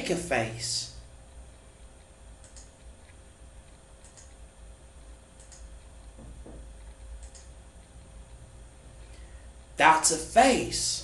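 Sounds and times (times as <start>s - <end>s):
steady low hum: 0.0s - 11.0s
computer mouse clicks: 2.4s - 4.4s, 5.4s - 5.8s, 6.5s - 8.0s.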